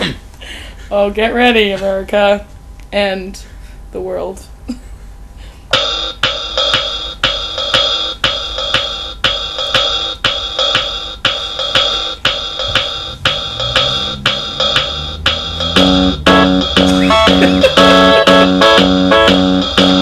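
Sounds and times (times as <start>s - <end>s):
electronic drum beat: 5.7s - 20.0s
hi-hat ticks: 6.2s - 20.0s
low bass line: 12.6s - 20.0s.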